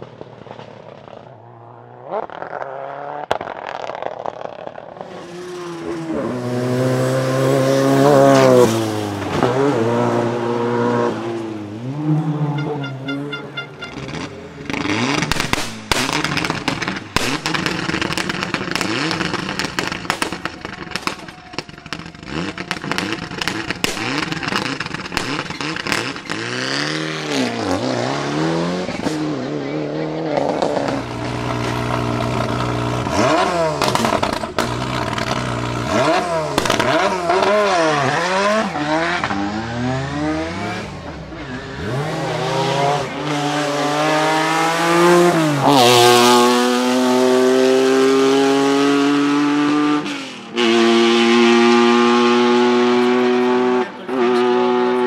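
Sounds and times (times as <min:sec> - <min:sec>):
car engine idling with pops: 0:03.3 - 0:05.0, 0:14.0 - 0:26.5, 0:33.8 - 0:35.9, 0:36.5 - 0:37.5
rally car revving past: 0:05.0 - 0:16.8, 0:22.2 - 0:55.0.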